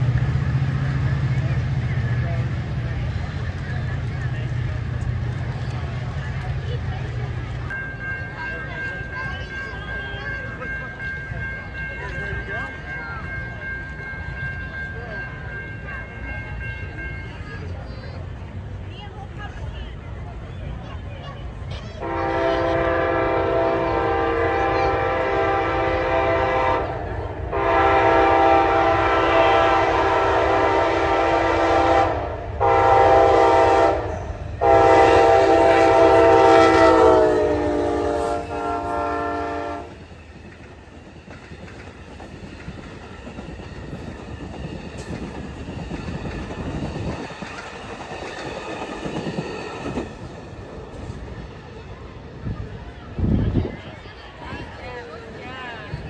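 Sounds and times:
train wheels clicking over rail joints: 0.0 - 19.6, 33.1 - 52.8
locomotive horn blasts: 22.0 - 40.0.

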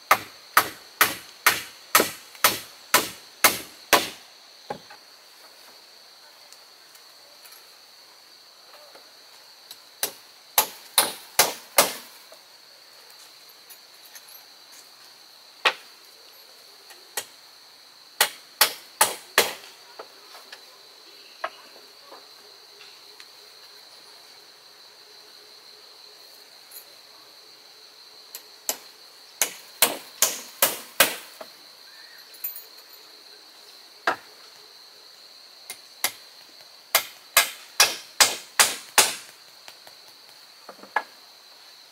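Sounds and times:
high insect drone: 0.0 - 41.9
hammer striking wood: 0.1 - 4.8, 10.0 - 12.0, 18.2 - 19.6, 29.4 - 31.2, 36.9 - 39.2.

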